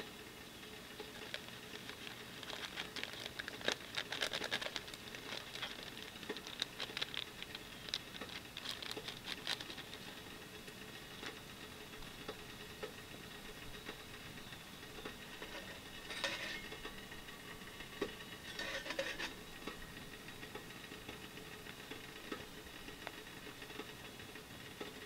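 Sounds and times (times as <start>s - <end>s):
steady background hiss: 0.0s - 25.0s
stove fire crackling: 0.0s - 25.0s
rustling and handling: 0.8s - 12.4s, 15.0s - 17.0s, 18.0s - 19.4s.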